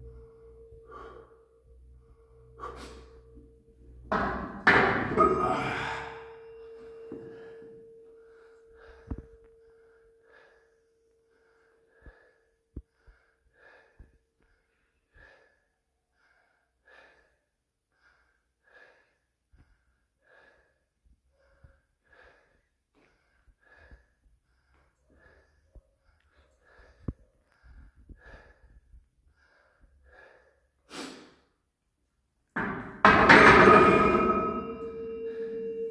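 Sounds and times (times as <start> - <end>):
man breathing strained: 0.1 - 15.6, 16.2 - 31.5
faint ringing tone: 5.5 - 11.8, 33.6 - 35.9.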